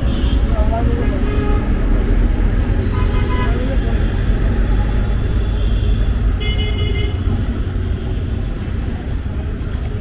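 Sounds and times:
street traffic rumble: 0:00.0 - 0:10.0
vehicle horn tooting: 0:02.8 - 0:03.6, 0:05.5 - 0:07.2.

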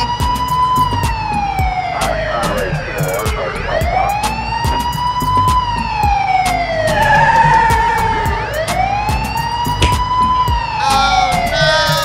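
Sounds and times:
police siren wailing: 0:00.0 - 0:12.0.

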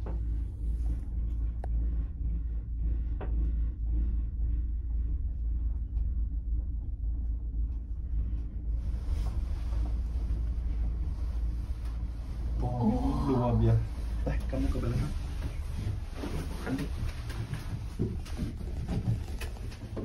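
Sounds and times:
cable car gondola rumble: 0:00.0 - 0:20.0.

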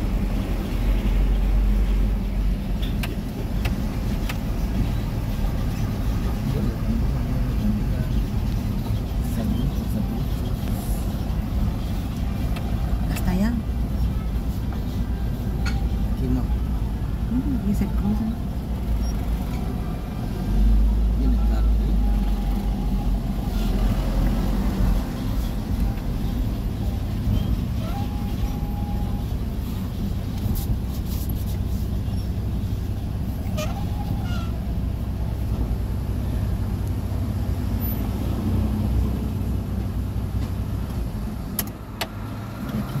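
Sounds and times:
car engine and road noise: 0:00.0 - 0:43.0.

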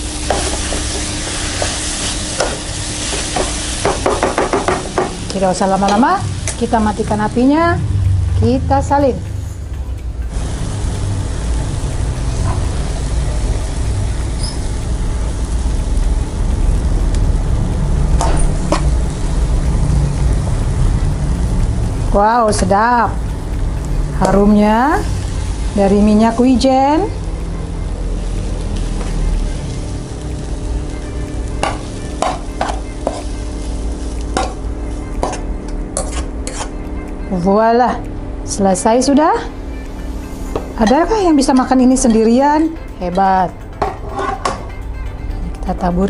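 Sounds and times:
low rumble: 0:05.2 - 0:32.1
metal utensil scraping a pan: 0:36.0 - 0:36.8, 0:43.8 - 0:44.7.

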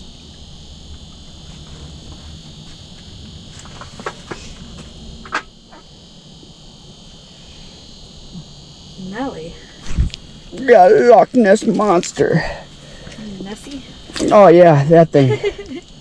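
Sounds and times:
heater hissing with faint whine: 0:00.0 - 0:16.0.

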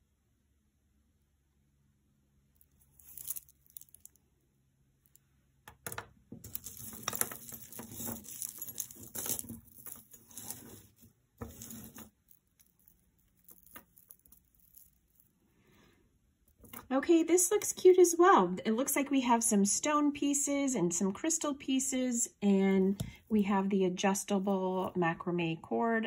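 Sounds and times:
jewelry rustling and clinking: 0:02.6 - 0:04.2, 0:05.0 - 0:15.5, 0:16.4 - 0:17.8.

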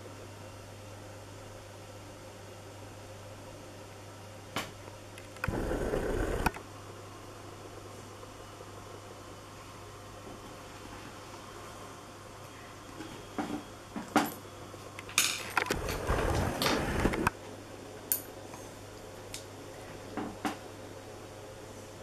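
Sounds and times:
steady low hum: 0:00.0 - 0:22.0
rubbing and low rumble: 0:15.8 - 0:17.3.

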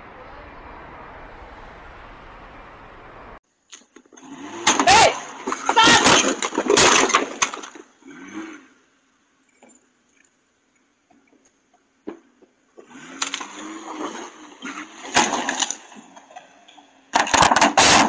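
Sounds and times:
pickup truck engine revving: 0:00.0 - 0:03.4.

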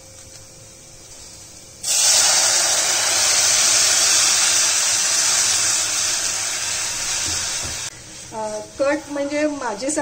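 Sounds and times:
water sizzling in hot oil: 0:01.1 - 0:07.9.

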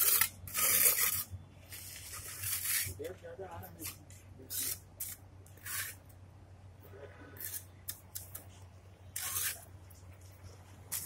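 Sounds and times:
trowel scraping mortar and brick: 0:00.0 - 0:03.0, 0:03.8 - 0:06.0, 0:07.2 - 0:08.5, 0:09.1 - 0:09.7.

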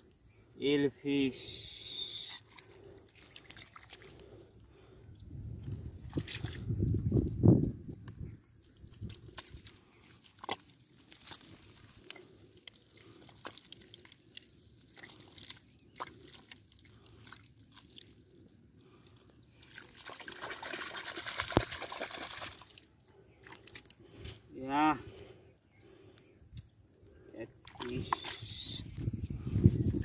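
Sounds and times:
hands squelching in wet mud: 0:01.9 - 0:07.2, 0:08.5 - 0:24.4, 0:27.6 - 0:30.0
water sloshing: 0:02.4 - 0:06.8, 0:08.6 - 0:24.3.

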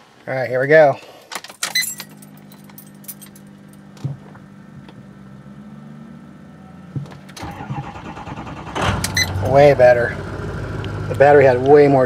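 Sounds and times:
keys jangling and clicking: 0:01.3 - 0:03.8
truck low hum: 0:01.8 - 0:12.0.

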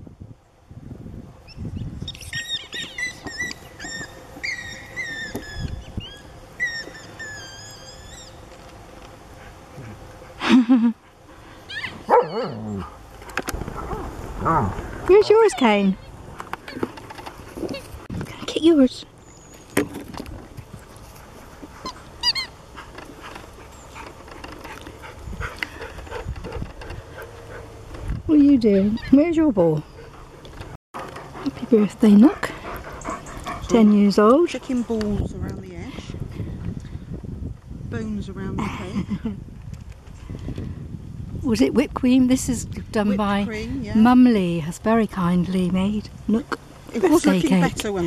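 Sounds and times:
squeaky toy ball squeaking: 0:21.8 - 0:22.5
squeaky toy squeaking: 0:22.2 - 0:22.6.

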